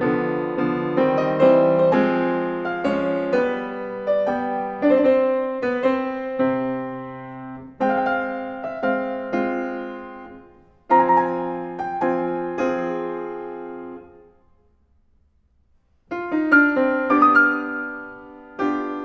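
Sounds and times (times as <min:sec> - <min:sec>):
solo piano classical music: 0:00.0 - 0:15.2, 0:15.8 - 0:19.0.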